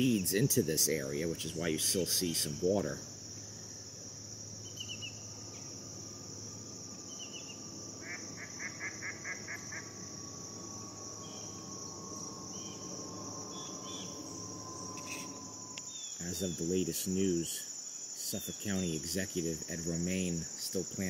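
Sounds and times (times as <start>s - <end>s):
crickets and insects trilling: 0.0s - 21.0s
short chirps: 14.0s - 16.0s.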